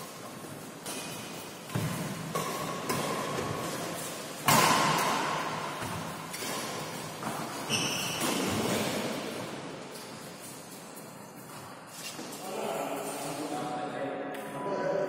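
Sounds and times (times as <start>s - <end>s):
racket hitting shuttlecock: 0.8s - 10.1s
short high squeak: 7.7s - 8.2s.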